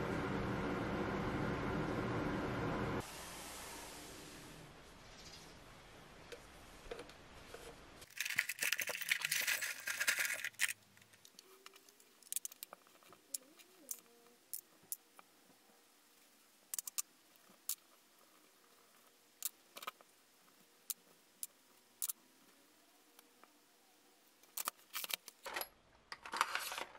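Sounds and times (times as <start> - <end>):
metal parts clinking: 8.1 - 13.1.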